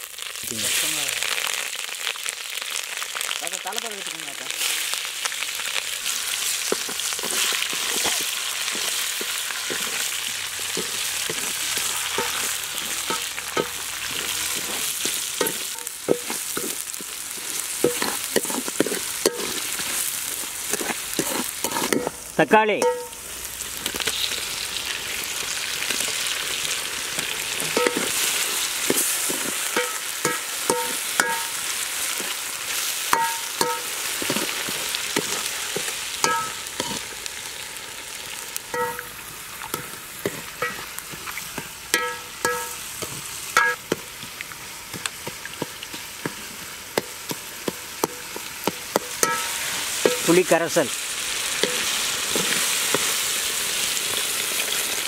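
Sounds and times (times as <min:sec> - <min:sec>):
vegetables sizzling in hot oil: 0:00.0 - 0:55.0
ladle knocking and scraping pot: 0:12.2 - 0:17.1, 0:17.8 - 0:19.6, 0:20.7 - 0:22.2, 0:27.6 - 0:28.2, 0:33.1 - 0:34.5, 0:35.2 - 0:37.0, 0:47.0 - 0:50.3.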